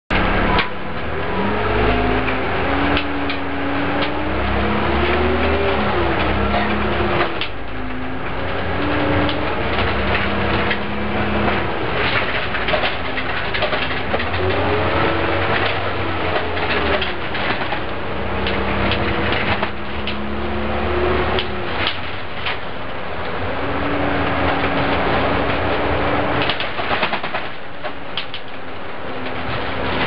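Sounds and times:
bus diesel engine whine: 0.1s - 30.0s.

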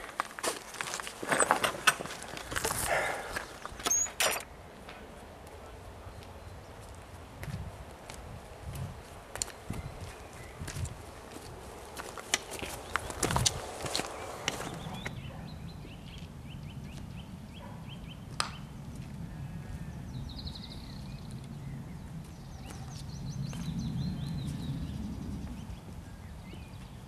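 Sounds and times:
footsteps on stony path: 0.0s - 4.9s, 6.1s - 15.2s
walking stick clicking on stones: 0.0s - 5.0s, 10.7s - 15.2s
birds chirping and trilling: 1.3s - 4.6s, 9.2s - 27.0s.

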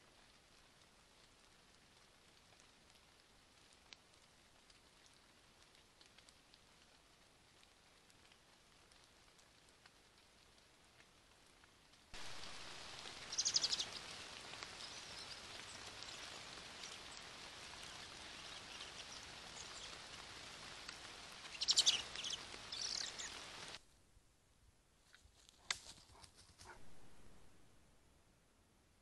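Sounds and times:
rain pattering on leaves: 0.0s - 23.8s
bird rattling call: 21.5s - 23.3s.

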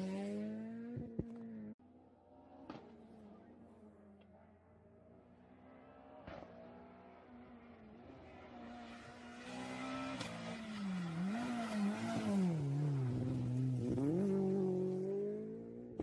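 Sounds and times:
rally car engine revving: 7.9s - 16.0s.

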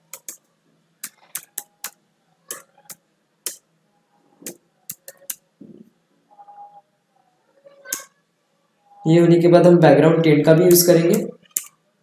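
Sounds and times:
keyboard typing: 0.0s - 3.6s, 4.4s - 5.4s, 10.6s - 11.8s.

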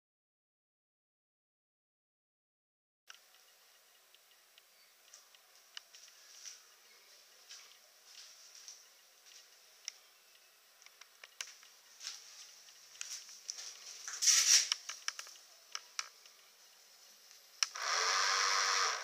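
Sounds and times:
small electric motor running: 17.7s - 19.0s.

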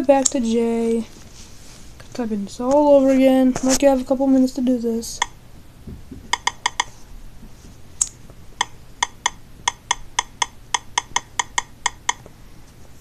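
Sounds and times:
on-screen keyboard key clicks: 6.3s - 6.9s.

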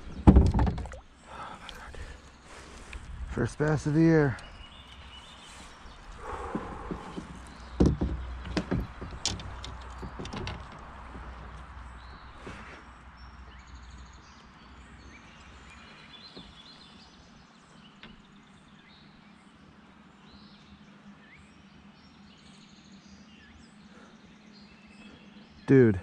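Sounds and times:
birds chirping and trilling: 0.0s - 26.0s.

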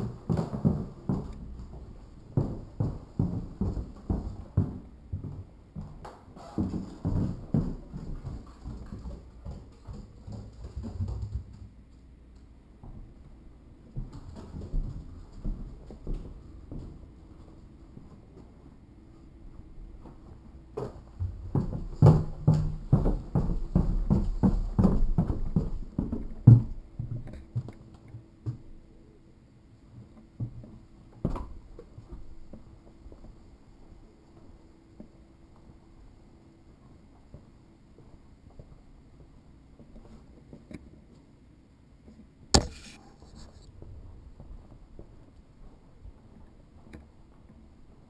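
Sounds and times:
soft footsteps on floor: 0.0s - 28.8s
footsteps going down stairs: 0.0s - 28.9s, 29.8s - 41.3s
sharp knock: 42.6s - 43.0s
camera handling noise: 42.6s - 43.6s.

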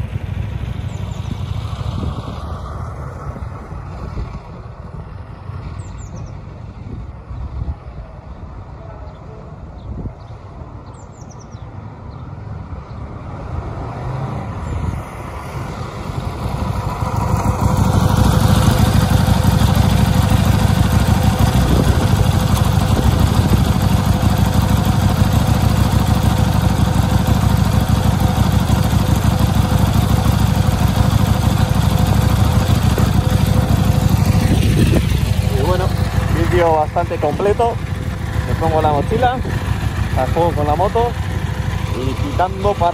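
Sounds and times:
motorcycle engine: 0.0s - 6.9s, 14.0s - 42.9s.

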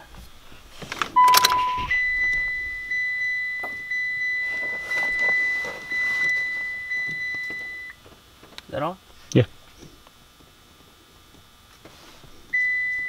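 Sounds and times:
dashboard warning chime: 1.2s - 8.0s, 12.5s - 13.0s
short lower beep: 1.2s - 8.0s.

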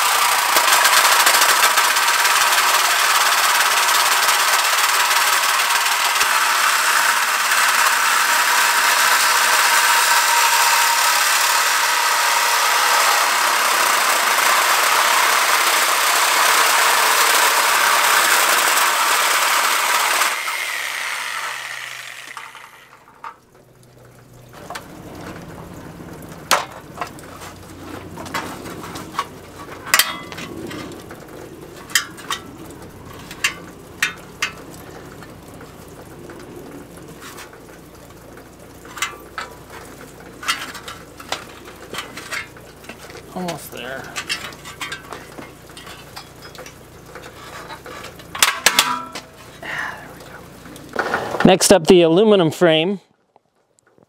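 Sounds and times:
reciprocating saw cutting metal: 0.0s - 23.4s, 38.9s - 49.6s
metal frame clicks and knocks: 47.7s - 49.3s.

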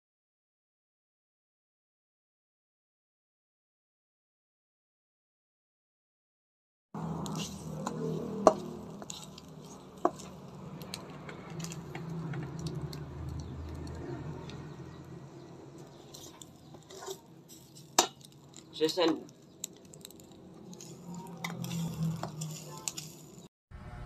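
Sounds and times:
utensil scraping eggs in pot: 7.1s - 23.4s.

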